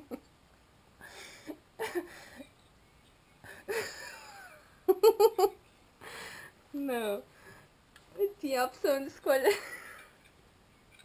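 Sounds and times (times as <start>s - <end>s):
woman laughing: 1.8s - 2.5s, 3.5s - 5.6s, 9.4s - 10.0s.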